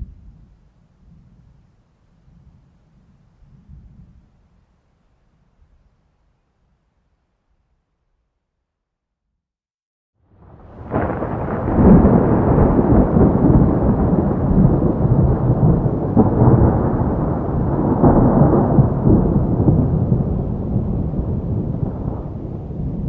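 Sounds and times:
heavy rain: 10.3s - 23.0s
rolling thunder: 10.3s - 23.0s.

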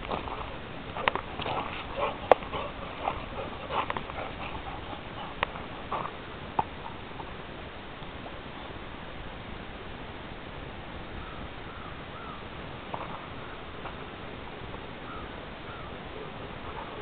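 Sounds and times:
dogs panting: 0.0s - 7.0s, 16.6s - 17.0s
paws moving on gravel: 0.0s - 7.3s
faint steady hiss: 0.0s - 17.0s.

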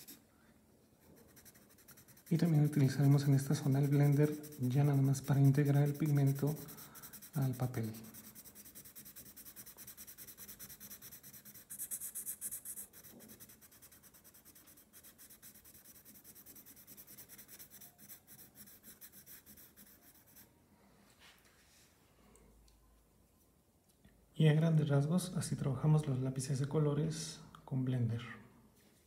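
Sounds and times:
pencil rubbing on paper: 0.0s - 0.2s, 1.0s - 20.5s.

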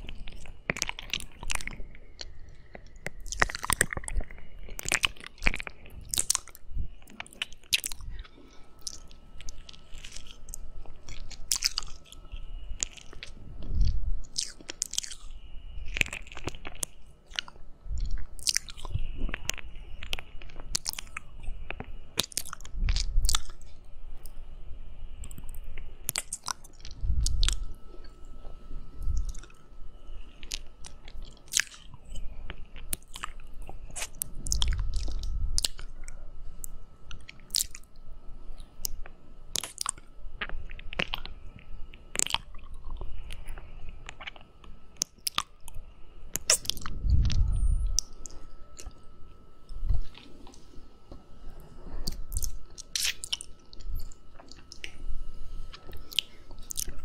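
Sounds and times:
wet mouth licking sounds: 46.4s - 47.4s, 52.0s - 55.0s.

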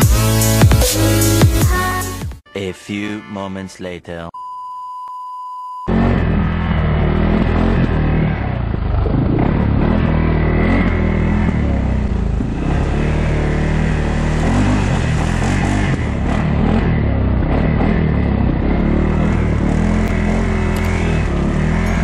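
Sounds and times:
atv engine running: 5.9s - 22.0s.

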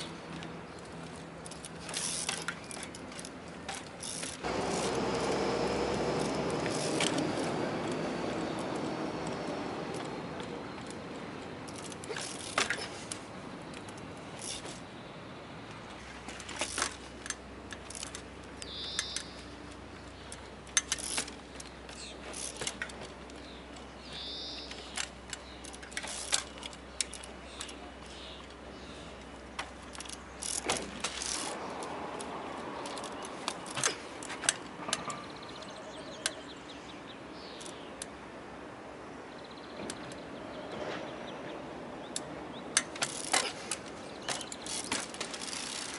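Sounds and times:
bicycle chain and frame rattling: 0.0s - 15.0s, 15.8s - 36.4s, 42.1s - 45.9s
bird chirping: 18.6s - 20.5s, 23.3s - 25.8s, 35.0s - 38.0s.

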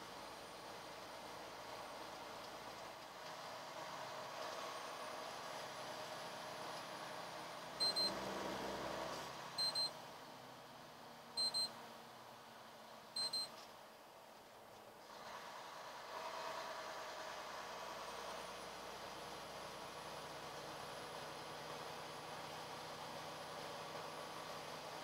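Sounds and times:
truck road and engine noise: 0.0s - 25.0s
electronic warning double beeps: 7.8s - 8.2s, 9.6s - 9.9s, 11.4s - 11.7s, 13.2s - 13.5s.

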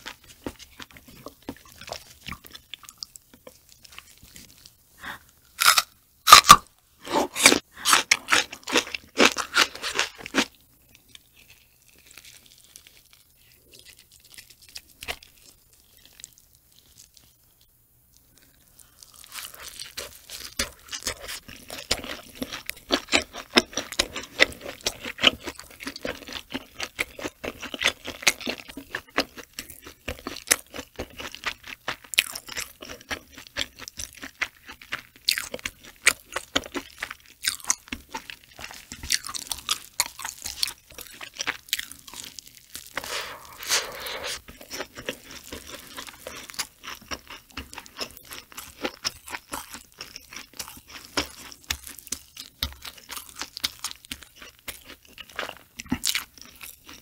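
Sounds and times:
chewing with mouth clicks: 18.1s - 57.0s.

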